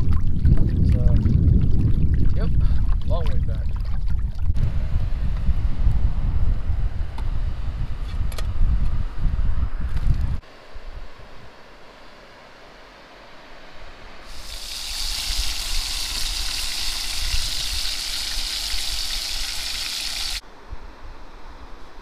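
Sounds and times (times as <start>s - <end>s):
bacon sizzling in a frying pan: 14.3s - 20.4s.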